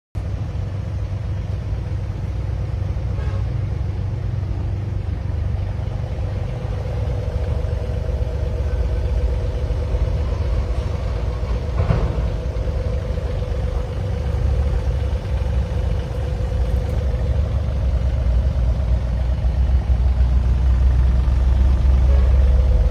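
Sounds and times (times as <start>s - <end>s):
diesel engine idling: 0.2s - 22.9s
brief knock: 11.8s - 12.3s.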